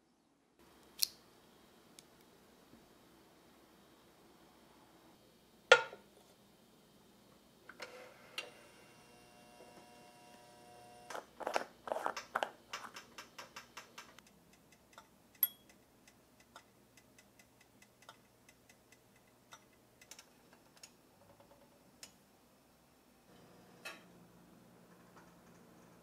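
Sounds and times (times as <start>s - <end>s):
hot plate clicks and ticks: 12.1s - 21.0s.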